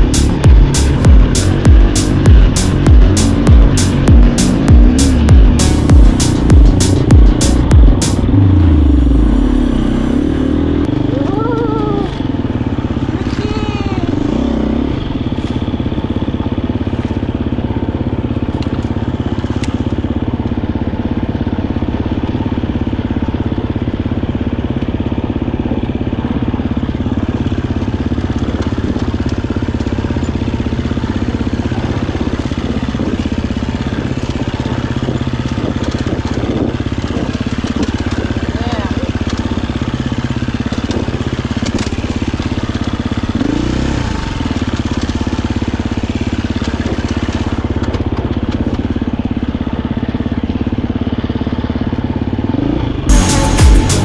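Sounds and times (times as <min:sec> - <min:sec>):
dirt bike engine low revs: 0:00.0 - 0:23.2.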